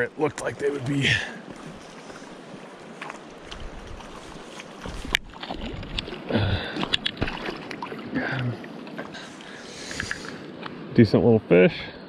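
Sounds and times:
running river: 0:00.0 - 0:12.0
fish splashing at the surface: 0:05.3 - 0:08.1.

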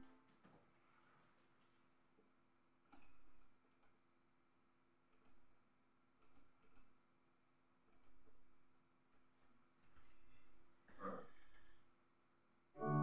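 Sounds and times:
computer mouse clicks: 0:02.9 - 0:04.0, 0:05.1 - 0:05.4, 0:06.2 - 0:07.0, 0:07.9 - 0:08.2.

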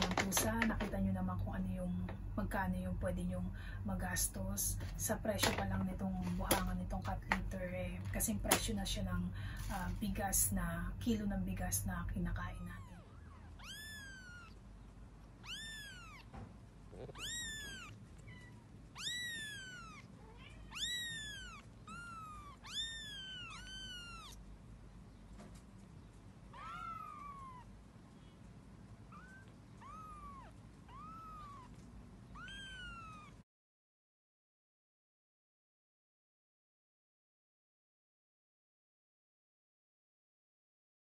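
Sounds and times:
kittens mewing: 0:12.6 - 0:14.7, 0:15.4 - 0:24.4, 0:26.5 - 0:27.8, 0:29.0 - 0:33.4.

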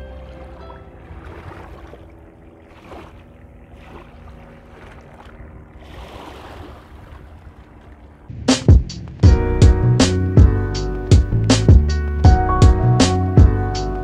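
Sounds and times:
waves lapping on concrete shore: 0:00.0 - 0:08.3.

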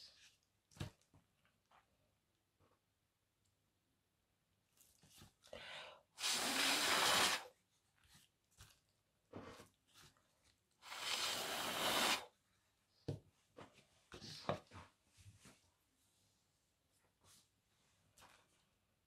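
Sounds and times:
person blowing hard: 0:06.2 - 0:07.5, 0:10.8 - 0:12.3.

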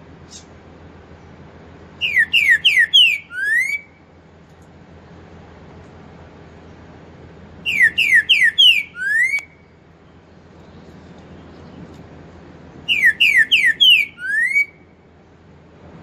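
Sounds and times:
bird singing whistled song: 0:02.0 - 0:04.0, 0:07.6 - 0:09.7, 0:12.8 - 0:14.9.

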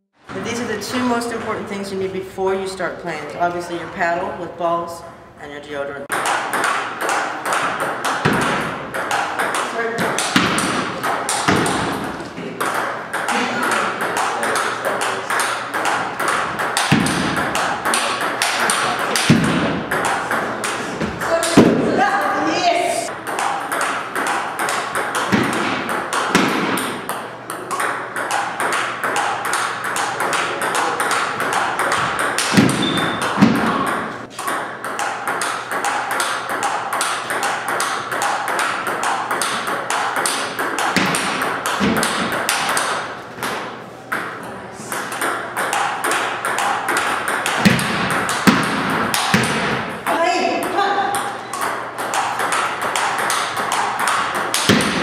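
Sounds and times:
table tennis ball clicks: 0:23.2 - 0:44.3, 0:50.6 - 0:55.0.

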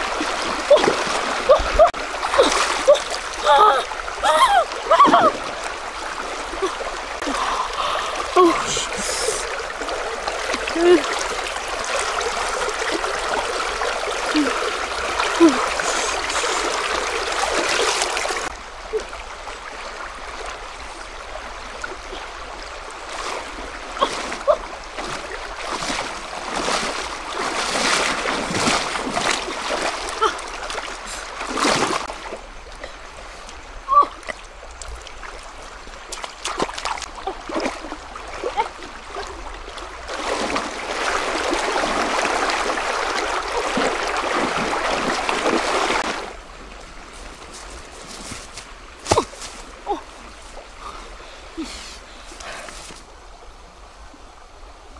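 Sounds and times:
splashes from wading: 0:00.0 - 0:19.0, 0:22.9 - 0:32.4, 0:33.9 - 0:46.4
stream rushing over stones: 0:00.0 - 0:54.9.

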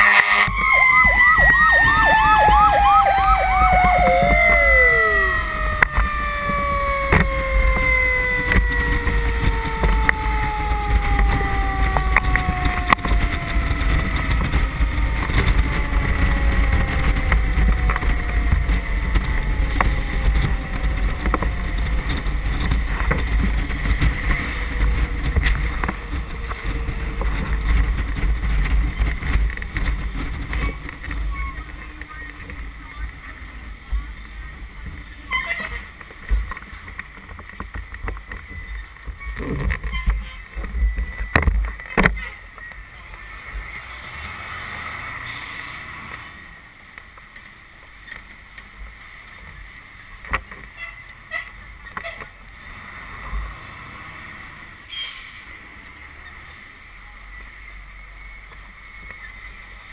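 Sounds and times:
fire engine siren: 0:00.0 - 0:32.6
road noise: 0:00.0 - 0:59.9
wind rumble on microphone: 0:00.4 - 0:43.7.

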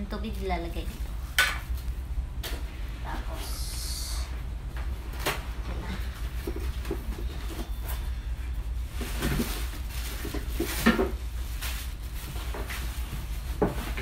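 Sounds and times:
plastic bags crinkling: 0:06.1 - 0:14.0.

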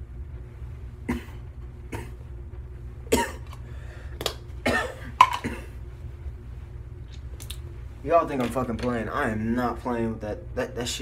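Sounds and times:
man coughing and gagging: 0:01.0 - 0:02.2, 0:03.1 - 0:03.5, 0:04.6 - 0:05.8.

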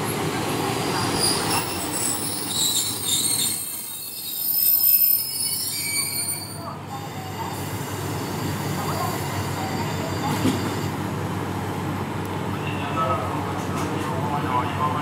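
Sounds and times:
railcar wheels and brakes squealing: 0:00.0 - 0:11.1.

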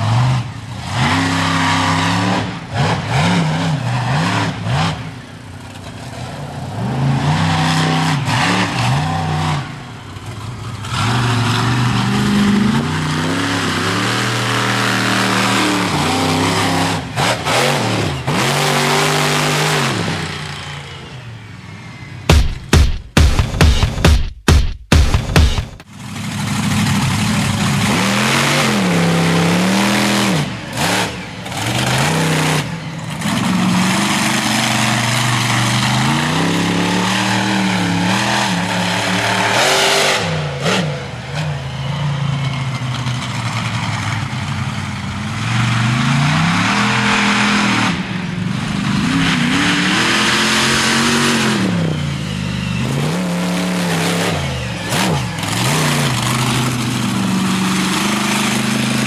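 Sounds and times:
model truck engine revving: 0:00.0 - 0:05.2, 0:06.7 - 0:22.0, 0:26.2 - 0:42.5, 0:45.3 - 0:59.0.

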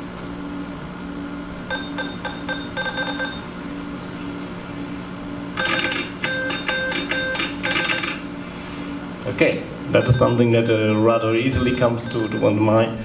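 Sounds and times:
short electronic beeps: 0:09.9 - 0:12.6.

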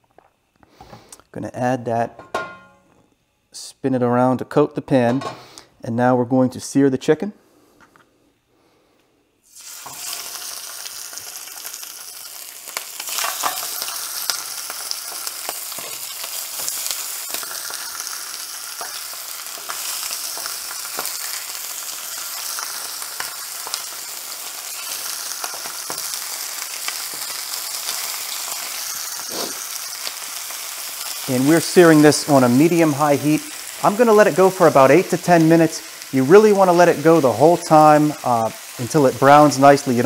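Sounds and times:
chicken sizzling in hot oil: 0:09.4 - 0:40.0.

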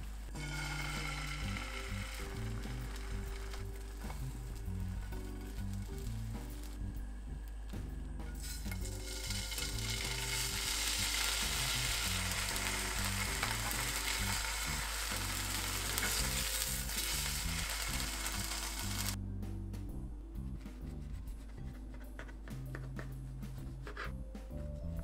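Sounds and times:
ham sizzling in a frying pan: 0:00.3 - 0:06.8, 0:08.4 - 0:19.2.

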